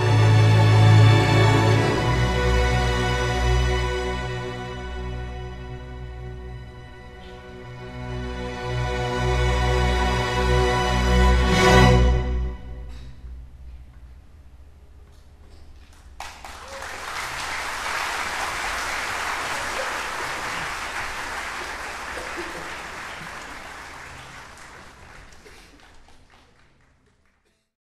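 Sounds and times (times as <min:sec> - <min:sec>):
string orchestra low note: 0:00.0 - 0:14.4
audience applauding: 0:15.9 - 0:27.6.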